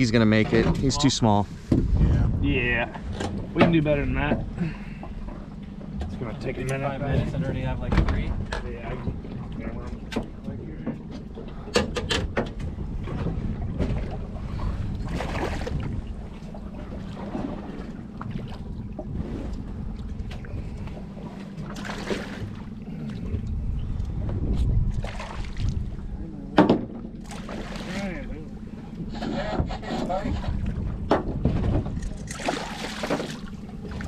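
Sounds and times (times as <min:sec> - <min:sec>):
outboard motor running: 0:00.0 - 0:34.0
wind noise: 0:00.6 - 0:03.0, 0:23.3 - 0:26.1.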